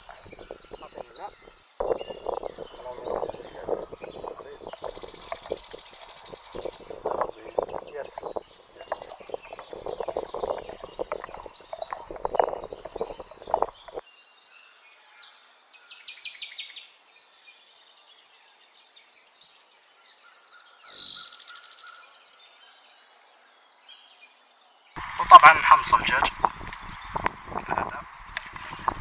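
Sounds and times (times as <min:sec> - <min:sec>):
wooden spoon stirring in plastic cup: 0:00.0 - 0:14.0
birds chirping: 0:00.0 - 0:15.2, 0:25.0 - 0:29.0.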